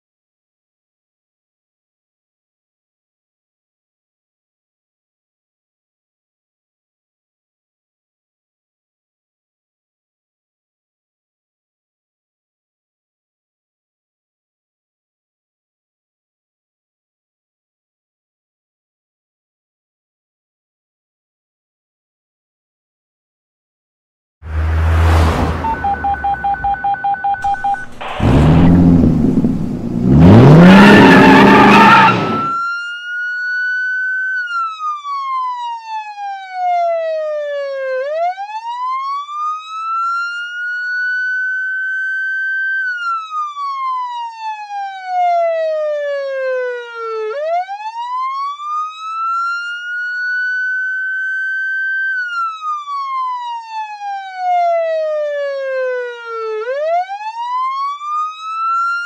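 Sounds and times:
low rumble: 0:24.5 - 0:30.9
police siren wailing: 0:24.6 - 0:59.0
rapid short electronic beeps: 0:25.6 - 0:28.7, 0:31.0 - 0:32.6
burst of noise rising in pitch: 0:27.5 - 0:32.6.

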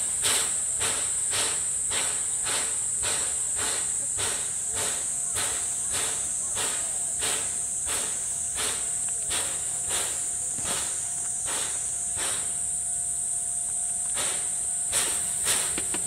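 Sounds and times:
steam locomotive puffing: 0:00.0 - 0:16.0.

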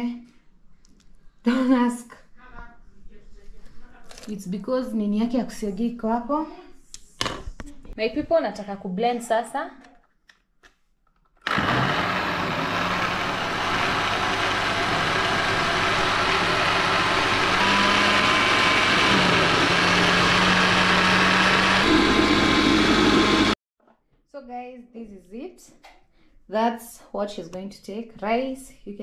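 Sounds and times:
blender motor running: 0:11.4 - 0:23.6.

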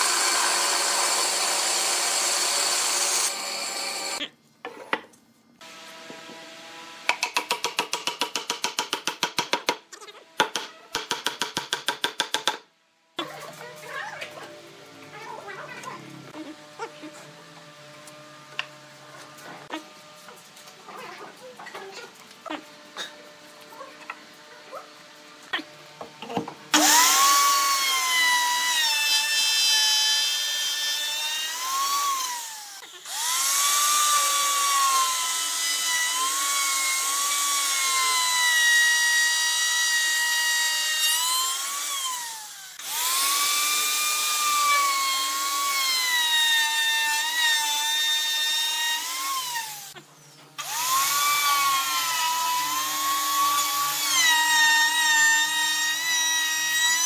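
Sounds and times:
router whining cutting wood: 0:00.0 - 0:04.2, 0:05.6 - 0:07.1, 0:24.0 - 0:50.0, 0:50.6 - 0:57.0.

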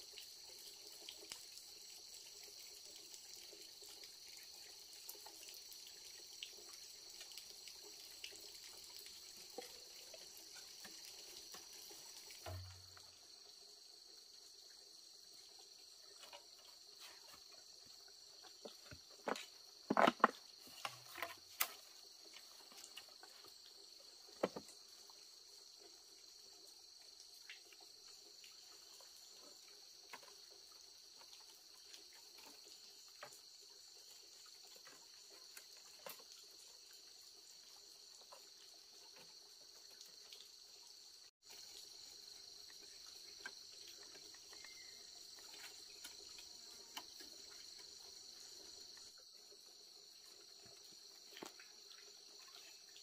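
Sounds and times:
crickets chirping: 0:00.0 - 0:53.0.

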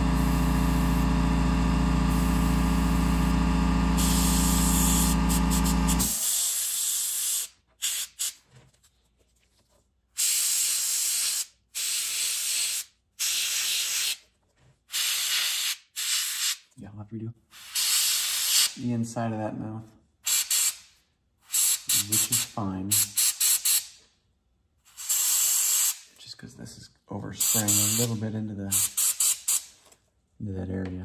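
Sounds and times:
motor low hum: 0:00.0 - 0:06.1
airbrush spraying hiss: 0:27.4 - 0:28.1.

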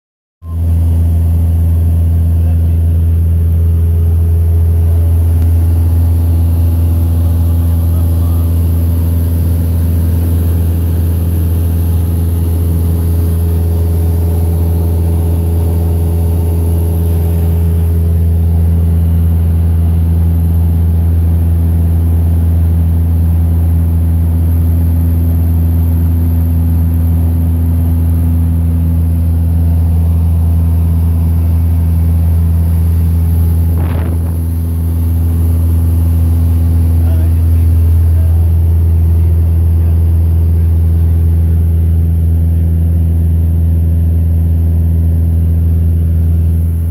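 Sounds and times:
aircraft engine droning: 0:00.4 - 0:46.9.

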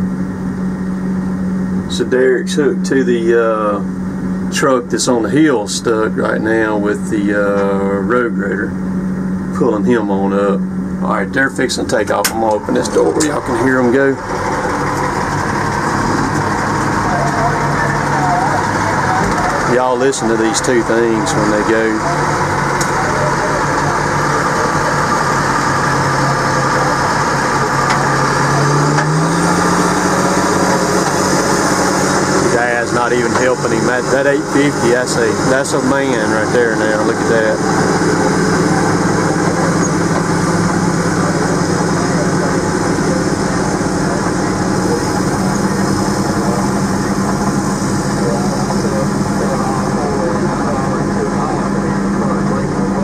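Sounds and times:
diesel engines running hard: 0:00.0 - 0:53.0.

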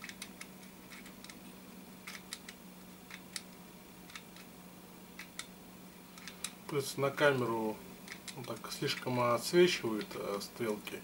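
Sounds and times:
clock gears clicking: 0:00.0 - 0:01.4
faint steady hum: 0:00.0 - 0:11.0.

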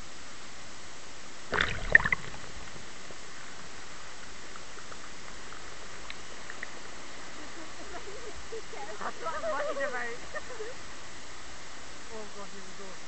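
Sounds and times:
steady hiss: 0:00.0 - 0:13.0
water splashing: 0:01.4 - 0:08.8.

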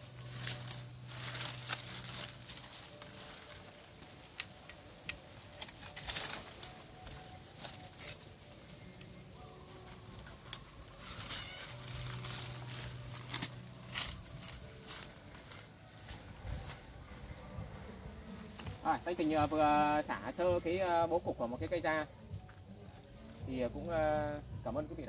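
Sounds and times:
twigs snapping: 0:00.0 - 0:17.5, 0:18.4 - 0:19.9
twigs and leaves crackling: 0:00.0 - 0:25.0.

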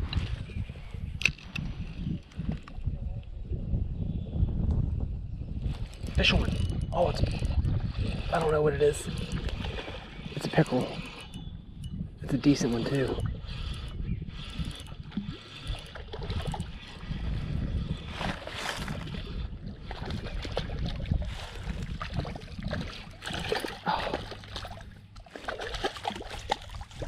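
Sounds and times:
fish thrashing and splashing: 0:18.2 - 0:27.0.

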